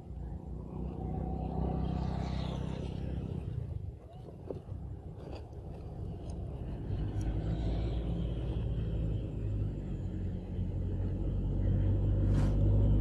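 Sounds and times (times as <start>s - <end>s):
low engine rumble: 0.0s - 13.0s.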